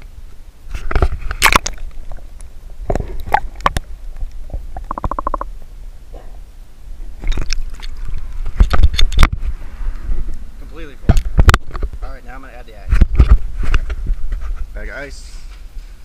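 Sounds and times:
water sloshing and gurgling: 0:00.8 - 0:05.5, 0:07.0 - 0:10.3.

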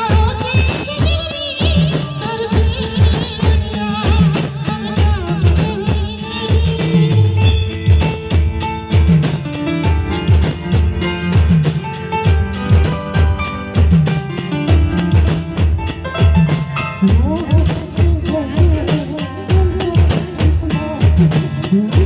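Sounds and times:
bass and snare drums beat: 0:00.0 - 0:22.0.

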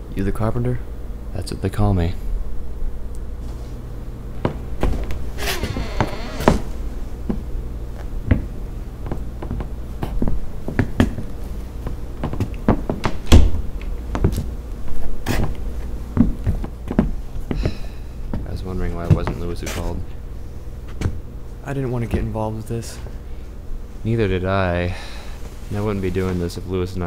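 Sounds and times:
footsteps on wooden floor: 0:04.4 - 0:13.2, 0:14.1 - 0:14.5, 0:15.2 - 0:19.8
door opening: 0:05.4 - 0:06.7.

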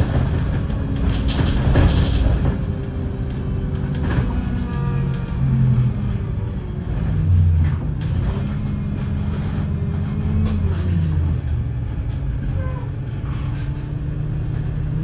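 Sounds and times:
knocks and rattles: 0:00.0 - 0:05.3
bus engine running: 0:00.0 - 0:15.0.

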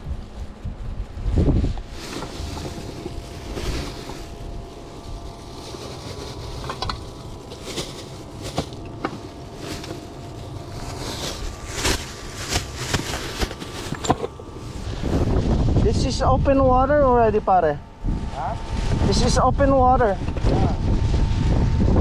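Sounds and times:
wind on microphone: 0:00.0 - 0:07.4, 0:10.8 - 0:22.0
plastic bags rustling: 0:00.0 - 0:16.1.

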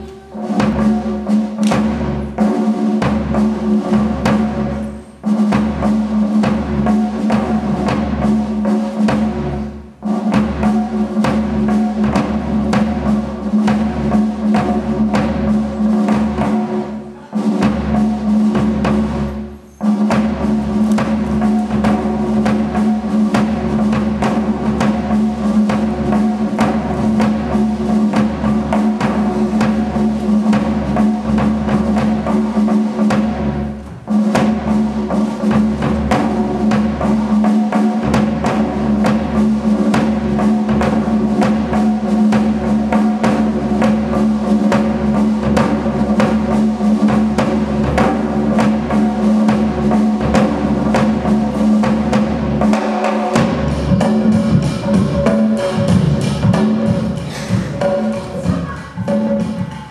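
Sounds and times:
fast drum beat: 0:00.0 - 0:59.9.

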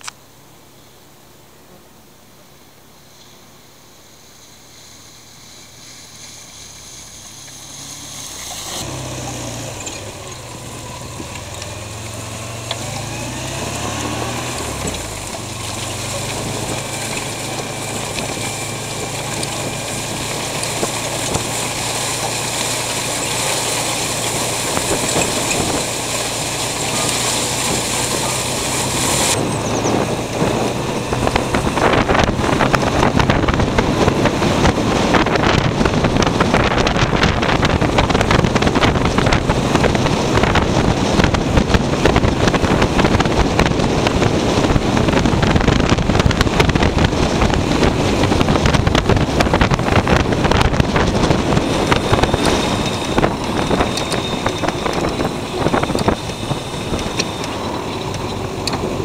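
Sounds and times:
small vehicle engine running: 0:04.1 - 0:59.0
wind buffeting microphone: 0:08.8 - 0:59.0.

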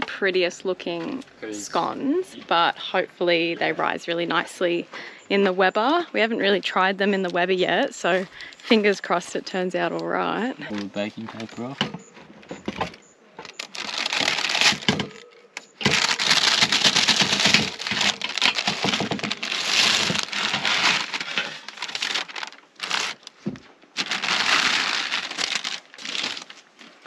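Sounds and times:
baking paper crinkling: 0:13.5 - 0:27.0.

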